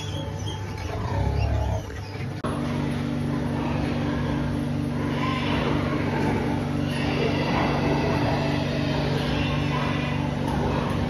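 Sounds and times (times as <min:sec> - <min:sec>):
piglets squeaking: 0:00.0 - 0:02.5
low mechanical hum with held tones: 0:00.0 - 0:11.0.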